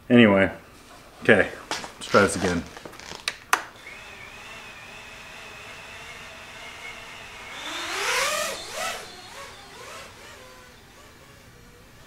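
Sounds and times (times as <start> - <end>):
drone motors whining: 3.8 - 12.0.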